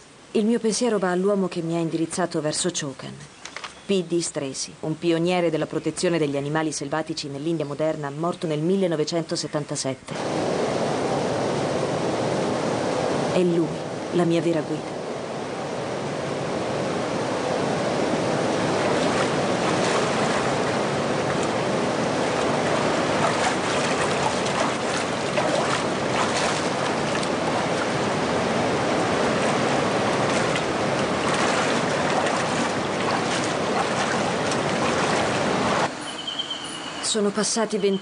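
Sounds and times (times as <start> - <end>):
stream water rushing: 15.0 - 35.9
splashes of people wading: 18.8 - 21.6, 22.2 - 28.2, 29.0 - 35.9.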